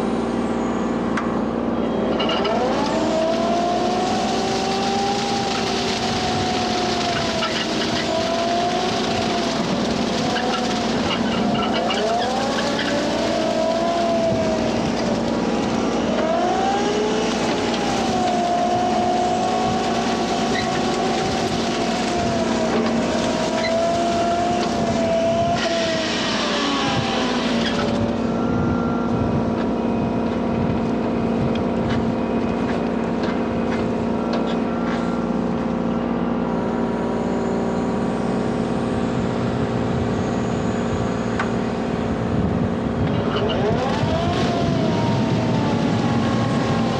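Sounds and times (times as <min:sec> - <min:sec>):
diesel engine running under load: 0:00.0 - 0:46.9
hydraulic whine: 0:00.0 - 0:46.9
brush cutter cutting grass: 0:01.8 - 0:28.6, 0:42.9 - 0:46.9.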